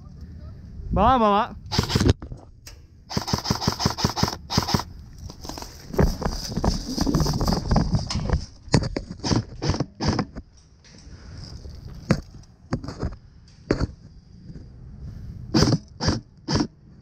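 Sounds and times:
airsoft gun shots: 0:01.7 - 0:02.1, 0:03.1 - 0:04.9, 0:15.5 - 0:16.7.

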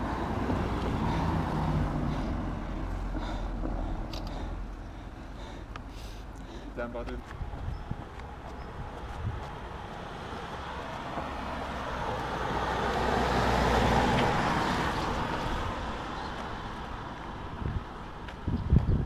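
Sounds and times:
car passing close by: 0:00.0 - 0:03.7, 0:09.1 - 0:17.7.

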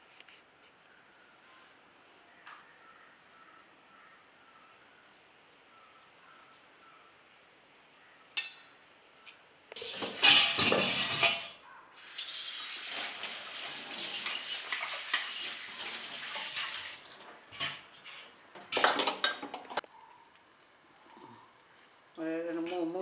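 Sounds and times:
knife clinking on steel bowl: 0:10.0 - 0:11.6.

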